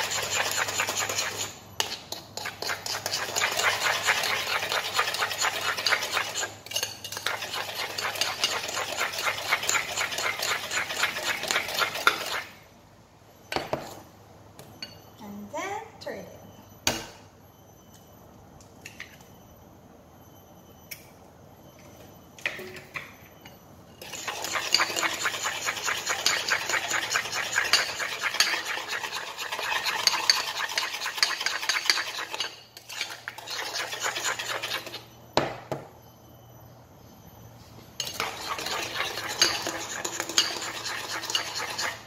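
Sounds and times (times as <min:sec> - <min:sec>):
fork beating in glass bowl: 0:38.0 - 0:42.0.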